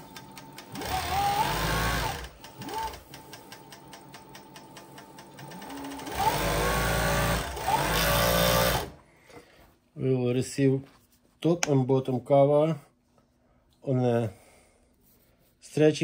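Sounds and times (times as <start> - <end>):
sewing machine motor whine: 0.0 - 9.0
sewing machine slow ticking: 0.0 - 9.0.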